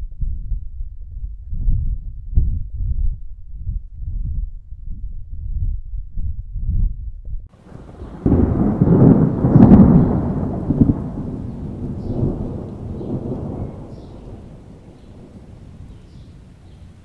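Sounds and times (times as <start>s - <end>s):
thunder rumbling: 7.6s - 17.0s.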